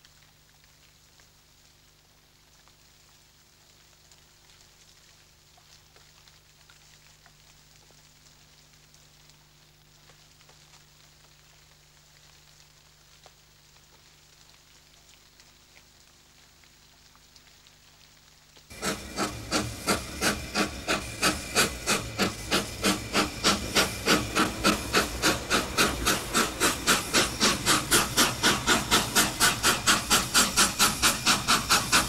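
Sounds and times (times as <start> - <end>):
steam locomotive chuffing: 18.7 - 32.0.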